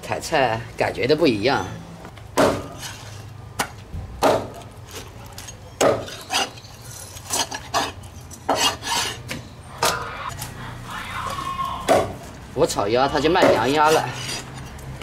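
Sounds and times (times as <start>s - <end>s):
cleaver chopping on wooden board: 2.4s - 2.8s, 3.6s - 4.6s, 13.4s - 13.7s.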